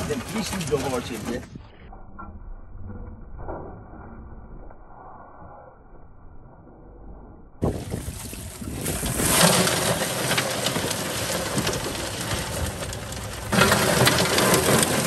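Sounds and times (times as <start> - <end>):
crawfish shells clattering on metal: 9.2 - 15.0.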